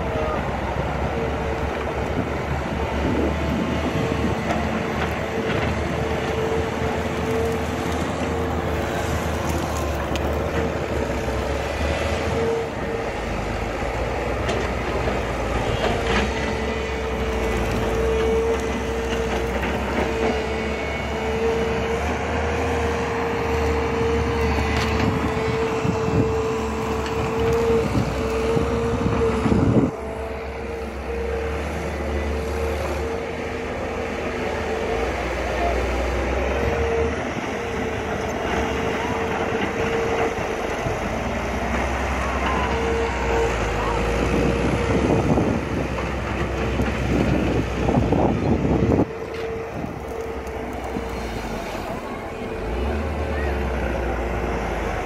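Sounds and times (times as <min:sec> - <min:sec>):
excavator diesel engine running: 0:00.0 - 0:55.0
constant whine: 0:37.1 - 0:55.0.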